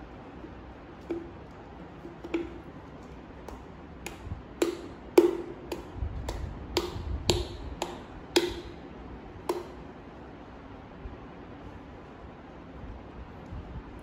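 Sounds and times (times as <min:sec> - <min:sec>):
plastic bottle clicking and knocking: 0:01.0 - 0:08.8, 0:09.5 - 0:09.8.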